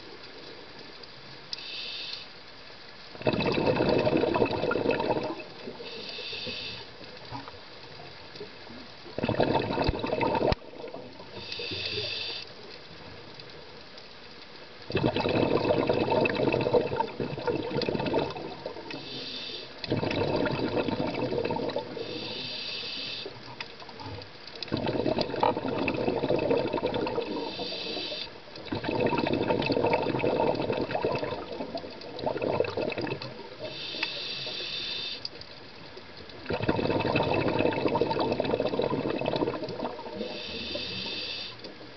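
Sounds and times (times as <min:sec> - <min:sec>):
regulator inhale hiss: 0:01.5 - 0:02.6, 0:05.6 - 0:07.5, 0:11.2 - 0:12.8, 0:18.8 - 0:19.9, 0:21.7 - 0:23.6, 0:27.2 - 0:28.5, 0:33.5 - 0:35.5, 0:40.0 - 0:41.8
exhaled air bubbling: 0:03.1 - 0:13.3, 0:14.8 - 0:41.9.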